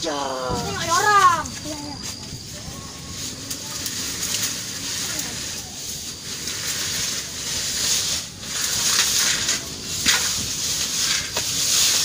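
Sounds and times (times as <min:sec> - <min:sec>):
grass and brush rustling: 0:00.0 - 0:12.0.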